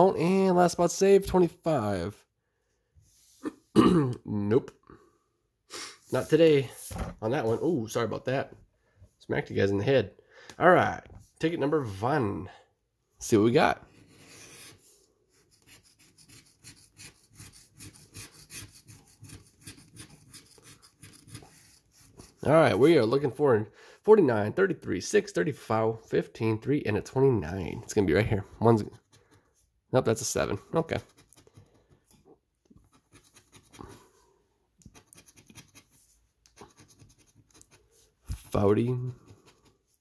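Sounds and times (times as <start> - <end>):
coin scratching lottery ticket: 33.0 - 33.8, 34.9 - 36.0.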